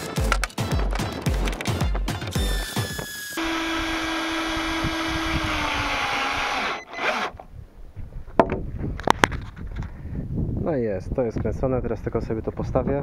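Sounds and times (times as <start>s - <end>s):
power drill driving screw: 2.3s - 7.4s.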